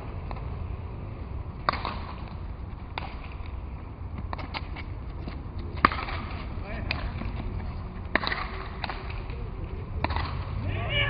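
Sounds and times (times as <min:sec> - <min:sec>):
low outdoor rumble: 0:00.0 - 0:11.0.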